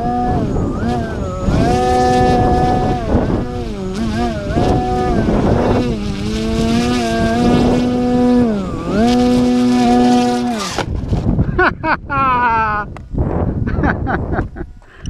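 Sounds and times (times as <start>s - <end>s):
plane hitting tarmac: 0.0s - 11.5s
model airplane propeller whining: 0.0s - 11.6s.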